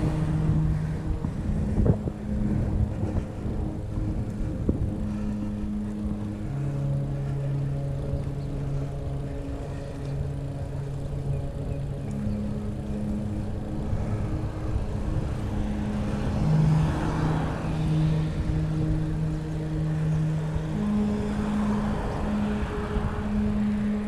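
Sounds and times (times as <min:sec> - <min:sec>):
wind rush: 0:00.0 - 0:07.0
bicycle tyre rumble on pavement: 0:00.0 - 0:24.0
low humming tones: 0:00.0 - 0:24.0.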